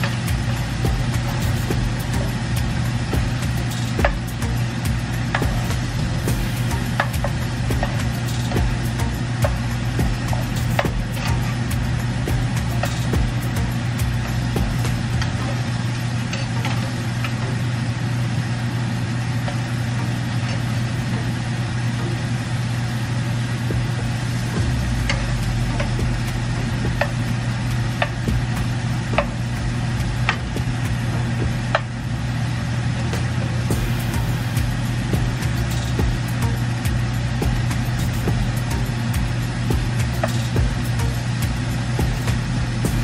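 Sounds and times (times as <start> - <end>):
constant low hum: 0.0 - 43.0.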